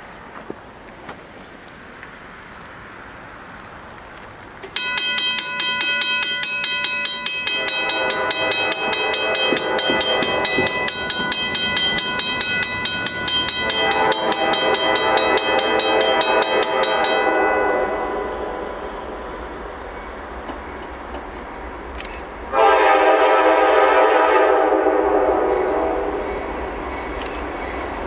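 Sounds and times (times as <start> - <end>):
crossing warning bell ringing: 4.7 - 21.0
locomotive air horn blasts: 7.4 - 11.1, 13.6 - 19.2, 22.5 - 26.2.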